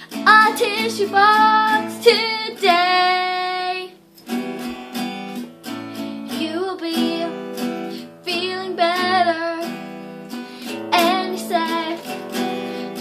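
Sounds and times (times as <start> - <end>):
guitar strumming chords: 0.0 - 13.0
child singing wordless melody: 0.2 - 4.0, 6.3 - 7.6, 8.2 - 9.8, 10.8 - 13.0.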